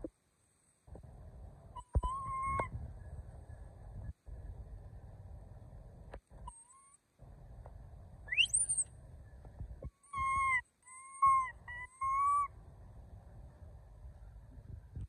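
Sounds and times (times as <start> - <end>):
monkey squealing: 8.3 - 8.8, 10.1 - 12.5.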